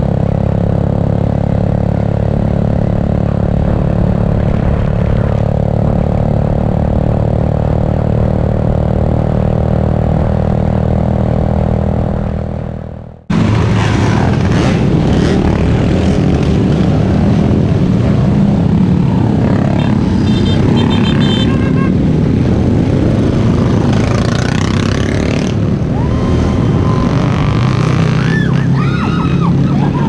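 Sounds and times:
motorcycles riding past: 0.0s - 30.0s.

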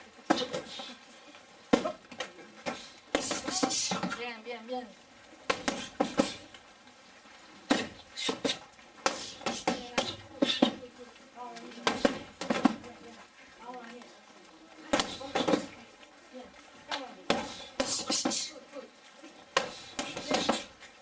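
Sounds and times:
kicks striking foam shield: 5.5s - 6.4s, 11.8s - 12.9s, 17.3s - 18.4s, 19.6s - 20.7s.

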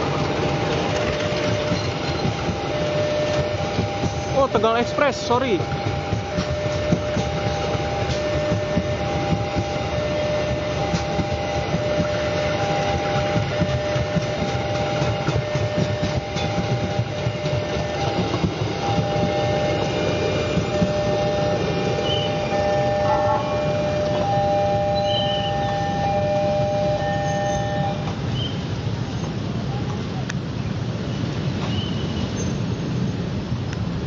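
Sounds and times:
train coaches rumbling and clattering: 0.0s - 34.0s
level crossing two-tone alarm: 1.6s - 28.1s.

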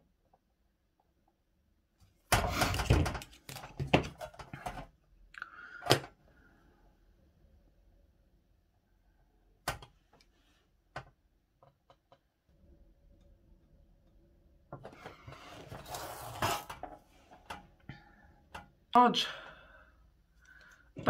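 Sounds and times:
metal dial scraping on mat: 15.1s - 17.0s.

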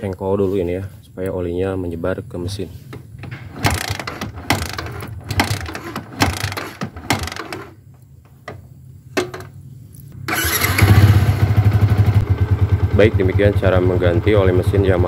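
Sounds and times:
motorcycle kick-starter ratcheting: 3.2s - 8.6s, 10.3s - 11.1s
motorcycle engine running: 3.5s - 7.7s, 10.2s - 15.0s.

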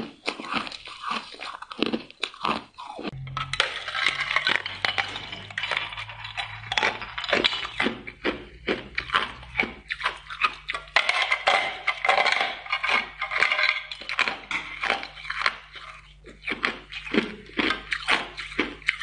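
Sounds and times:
ice being bitten and crunched: 0.0s - 3.2s, 13.9s - 19.0s.

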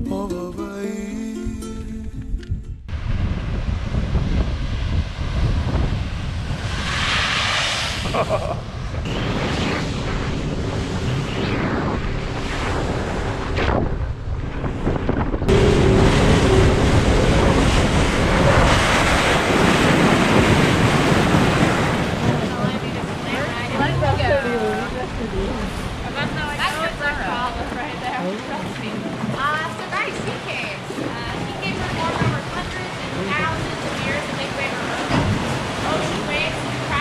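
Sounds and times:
wind buffeting microphone: 1.9s - 37.0s
water rushing past boat hull: 10.8s - 37.0s
surf breaking on rocks: 13.1s - 28.2s, 28.8s - 37.0s.

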